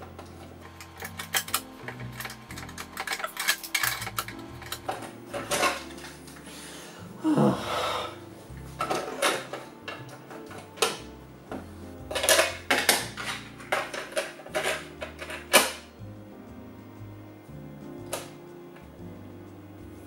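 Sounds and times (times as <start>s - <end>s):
plastic clicks and clacks: 0.2s - 6.1s, 8.8s - 15.9s.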